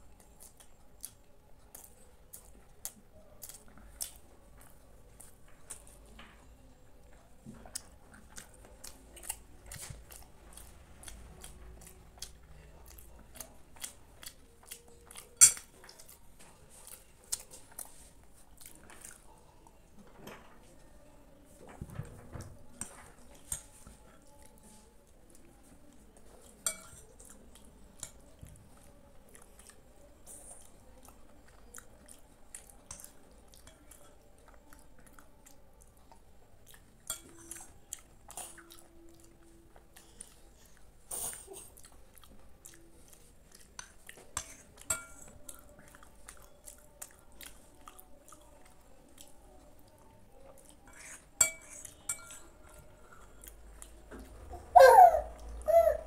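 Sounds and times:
chewing and mouth sounds: 0.0 - 6.4, 7.0 - 20.0, 22.3 - 54.5
metal spoon scraping glass bowl: 50.9 - 52.5.

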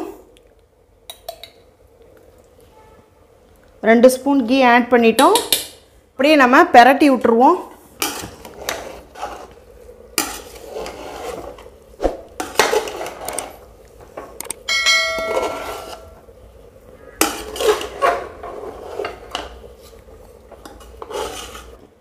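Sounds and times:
metal spatula scraping a pot: 8.0 - 9.6, 10.2 - 11.7, 15.2 - 16.2, 17.2 - 20.0, 20.6 - 21.8
ringing chime: 14.7 - 15.8.

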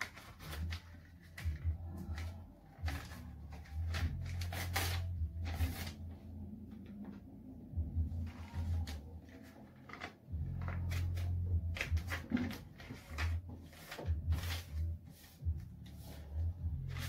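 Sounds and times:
paper being folded and creased: 0.0 - 6.3, 8.2 - 17.0
low hum: 1.4 - 9.2.

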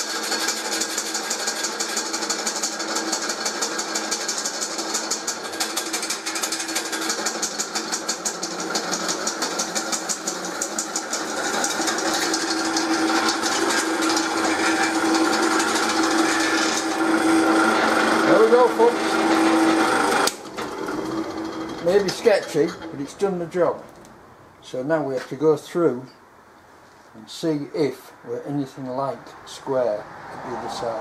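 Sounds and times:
drill boring through steel: 0.0 - 23.0.

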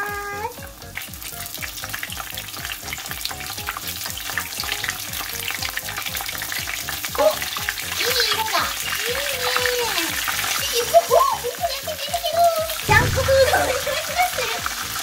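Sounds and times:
spring rolls sizzling in oil: 0.0 - 15.0.

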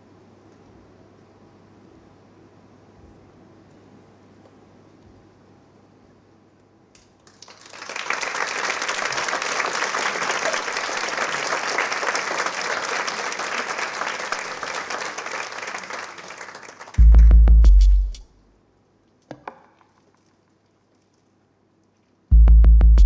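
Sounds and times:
audience applauding: 7.2 - 17.4
loud low boom: 17.0 - 18.2.

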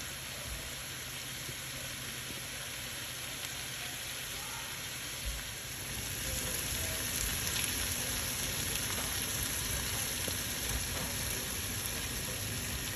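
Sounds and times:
fish and onions sizzling in oil: 0.0 - 12.9
oil popping: 5.1 - 12.9.

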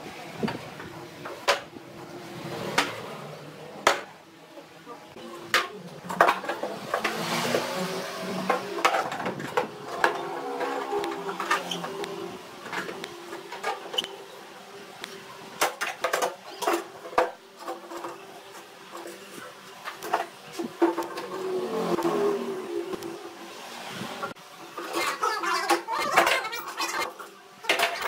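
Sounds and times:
metal scraping on wood: 6.1 - 14.2.

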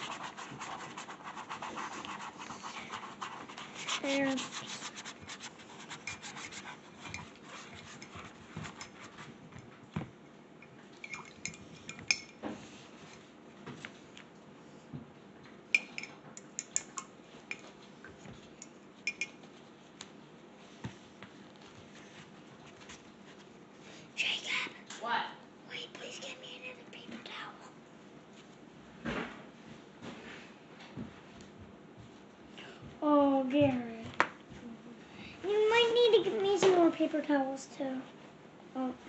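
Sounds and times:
paintbrush clinking in ceramic mug: 18.6 - 19.4.

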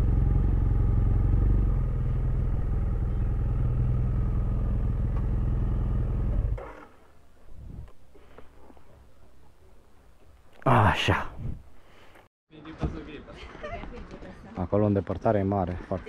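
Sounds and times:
motorcycle engine running: 0.0 - 6.8.

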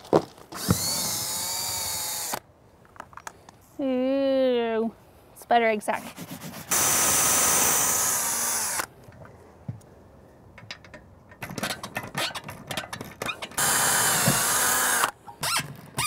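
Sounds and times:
cordless drill boring into siding: 0.6 - 2.4, 6.7 - 8.9, 13.6 - 16.0
metal hose reel knocking: 10.6 - 13.6.

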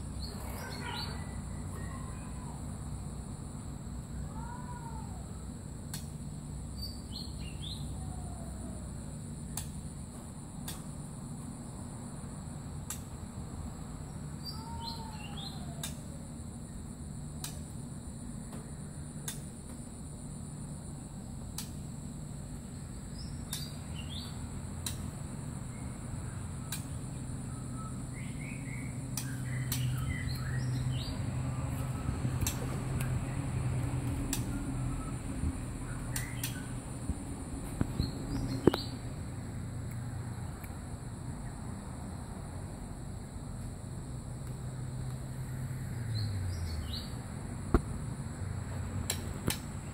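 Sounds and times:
steady low hum: 0.0 - 49.9
bird calling sharply: 0.2 - 2.4
bird chirps and whistle: 27.4 - 31.2, 35.9 - 36.8.

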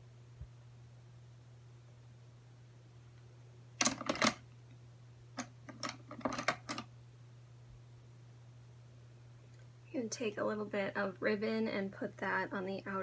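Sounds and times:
makeup brushes clicking and clattering: 3.8 - 4.4, 5.4 - 6.9.

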